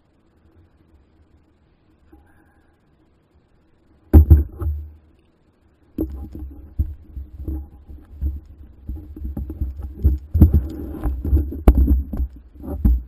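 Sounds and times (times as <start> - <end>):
knocks and bumps: 4.1 - 5.0, 6.0 - 13.0
motorcycle engine thumping: 4.1 - 5.0.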